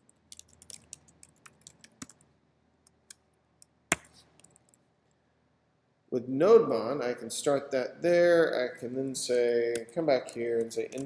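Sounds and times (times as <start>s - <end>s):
typing on computer keyboard: 10.2s - 11.0s.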